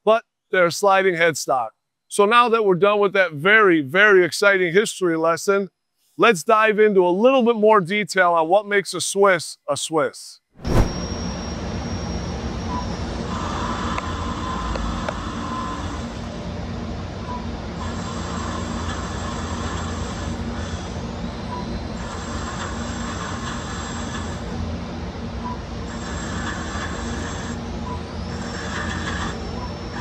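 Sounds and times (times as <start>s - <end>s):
lathe machine hum: 11.0s - 30.0s.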